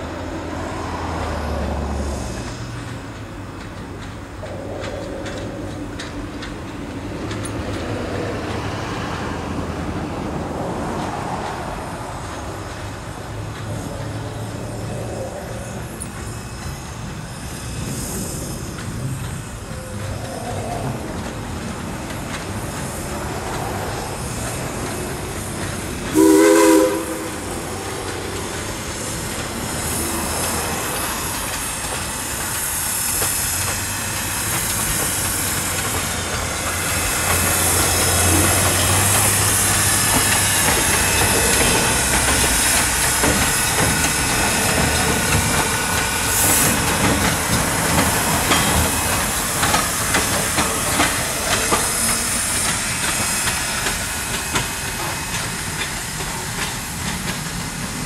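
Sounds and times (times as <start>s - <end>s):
steam locomotive running: 0.0s - 58.0s
steam locomotive whistle: 26.1s - 27.7s.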